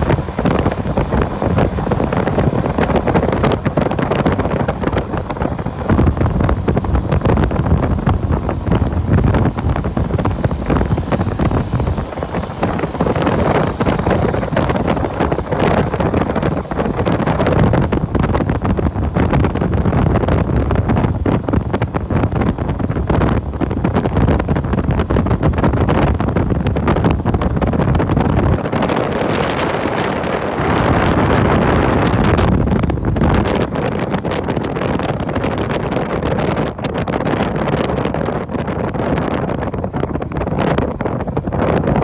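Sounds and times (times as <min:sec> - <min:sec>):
motorbike engine running: 0:00.0 - 0:20.2
wind buffeting microphone: 0:00.0 - 0:42.0.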